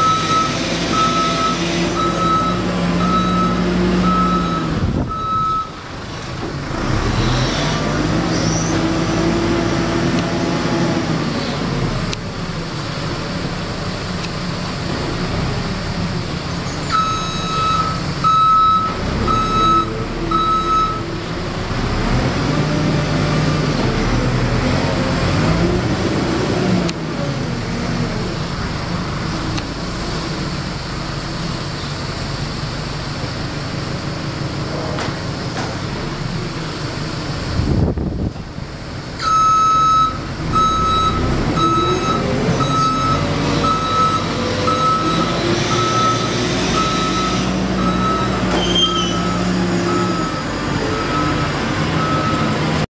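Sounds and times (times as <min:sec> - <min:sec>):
reversing alarm beeps: 0:00.0 - 0:05.7, 0:16.9 - 0:21.1, 0:39.2 - 0:52.5
diesel engine revving: 0:00.0 - 0:52.9.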